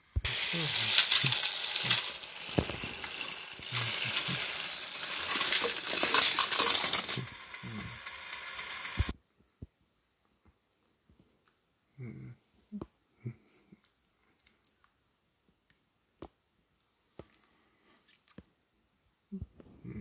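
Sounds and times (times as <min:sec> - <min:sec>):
plastic toy trains clattering: 0:00.2 - 0:09.1.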